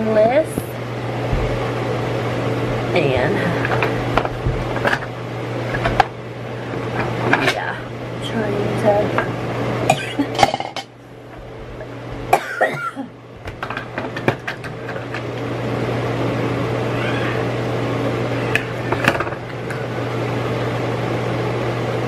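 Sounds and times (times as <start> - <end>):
steady noise: 0.0 - 15.1
low steady hum: 0.0 - 16.7.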